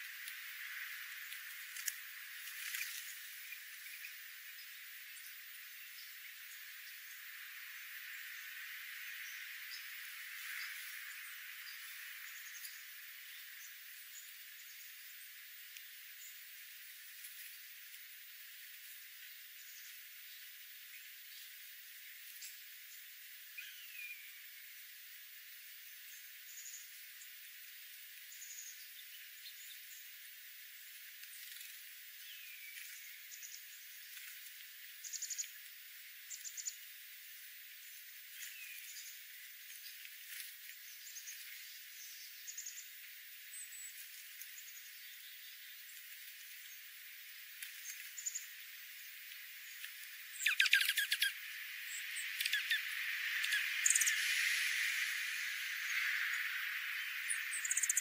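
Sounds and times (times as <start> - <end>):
songbirds chipping: 0.0 - 24.9, 25.7 - 58.0
steady hiss: 0.0 - 58.0
songbirds chip calls: 37.8 - 58.0.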